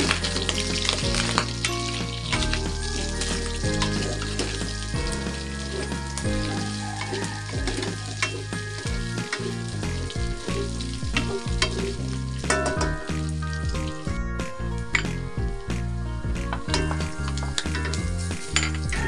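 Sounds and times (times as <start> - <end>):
meat sizzling in a pan: 0.0 - 13.8.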